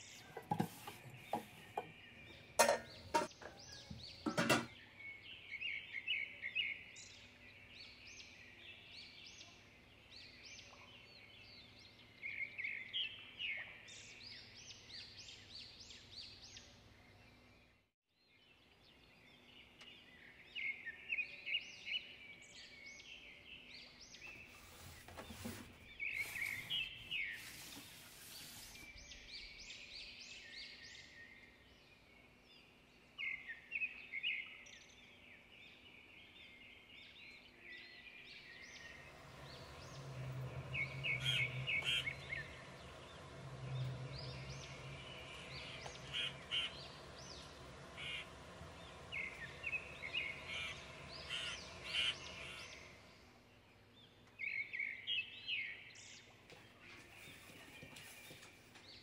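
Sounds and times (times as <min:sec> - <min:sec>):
small birds chirping: 0:00.0 - 0:59.0
cookware knocks and clinks: 0:02.6 - 0:04.8.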